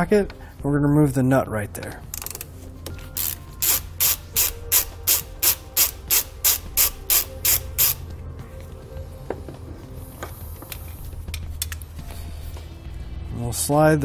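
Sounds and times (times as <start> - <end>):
ratchet wrench clicking: 2.1 - 2.5, 3.2 - 8.0.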